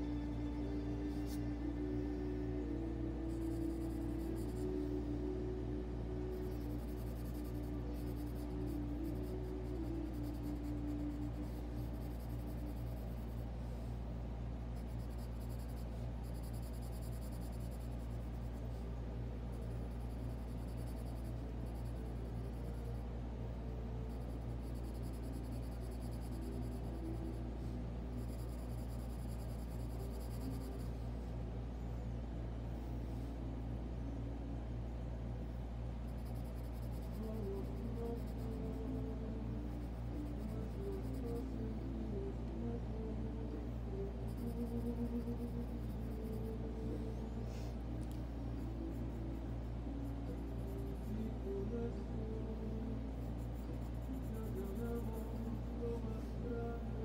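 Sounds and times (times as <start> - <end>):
quiet background music: 0.0 - 57.0
steady low hum: 0.0 - 57.0
pencil scratching on paper: 14.8 - 18.6.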